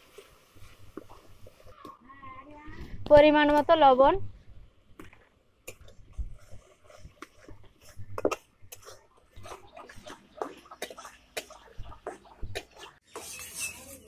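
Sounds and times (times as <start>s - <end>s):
steel spatula scraping a pan: 6.2s - 14.0s.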